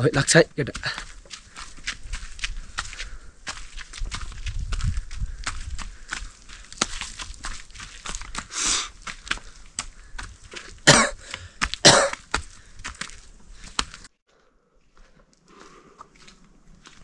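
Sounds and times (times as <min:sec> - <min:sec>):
footsteps on stony path: 0:00.0 - 0:17.0
man breathing heavily: 0:00.8 - 0:07.2, 0:07.8 - 0:16.4
man coughing: 0:10.8 - 0:11.2, 0:11.8 - 0:12.2.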